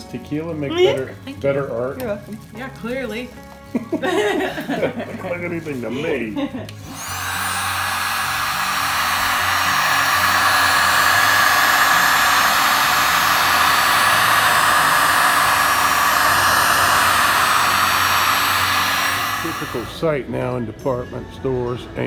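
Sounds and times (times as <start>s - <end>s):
heat gun blowing air: 5.9s - 20.1s.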